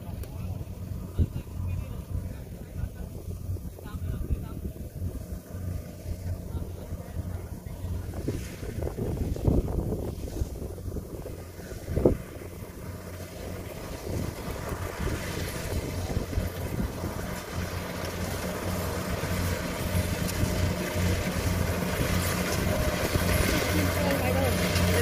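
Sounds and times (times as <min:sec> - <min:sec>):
combine harvester engine humming: 0:00.0 - 0:25.0.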